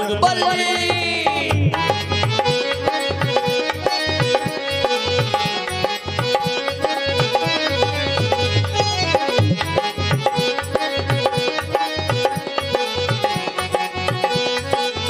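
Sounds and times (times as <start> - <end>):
hand drums playing rhythm: 0.0 - 15.0.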